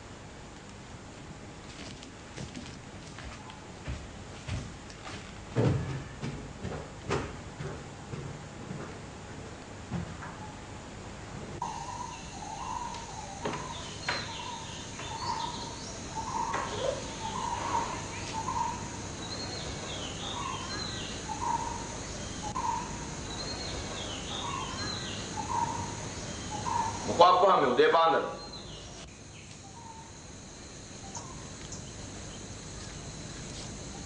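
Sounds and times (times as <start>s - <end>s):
high downward-sweeping chirps: 11.6s - 34.0s.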